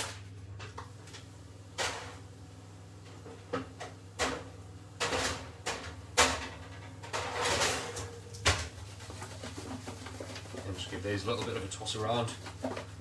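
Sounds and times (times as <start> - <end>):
baking trays knocking and clunking: 3.2 - 13.0
scraping and rustling: 7.0 - 13.0.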